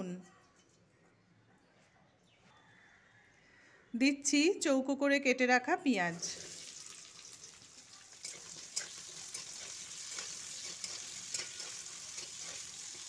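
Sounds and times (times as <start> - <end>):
onions sizzling in hot oil: 6.2 - 13.0
spatula scraping a pan: 8.1 - 13.0.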